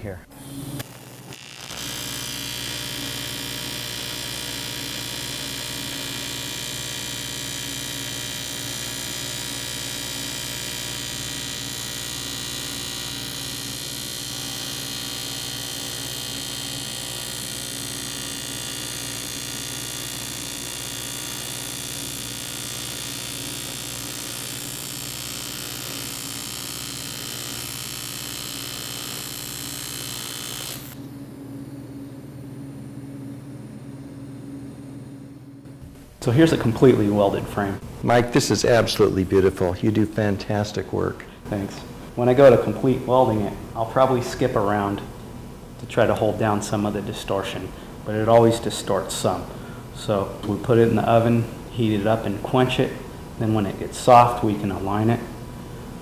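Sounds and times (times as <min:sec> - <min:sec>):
welding arc buzzing and hissing: 0:00.2 - 0:31.2, 0:35.6 - 0:40.2.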